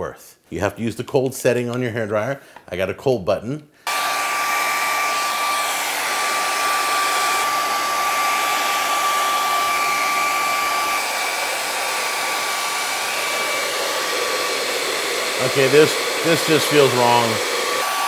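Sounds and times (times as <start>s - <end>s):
hair dryer blowing: 3.8s - 18.0s.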